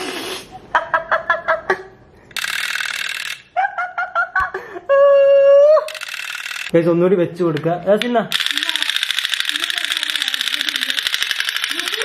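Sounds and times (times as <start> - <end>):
clockwork toy whirring: 2.3 - 3.5, 5.9 - 6.8, 8.3 - 12.0
high-pitched giggling: 3.4 - 6.0.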